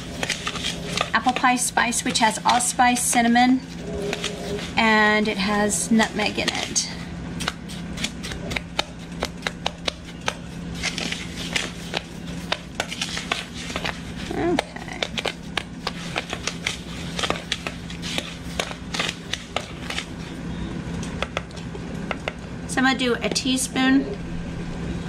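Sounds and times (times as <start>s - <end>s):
spoon scraping plastic bowl: 0.0s - 14.4s
low steady hum: 0.0s - 25.0s.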